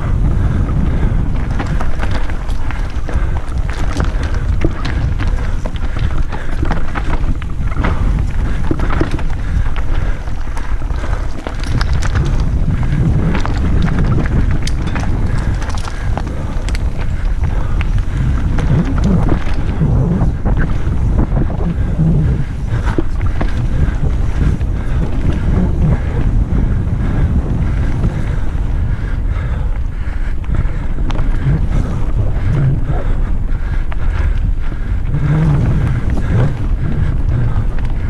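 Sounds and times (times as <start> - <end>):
bike rattling: 0.0 - 38.0
wind buffeting microphone: 0.0 - 38.0
tyres crunching over gravel: 0.1 - 26.5.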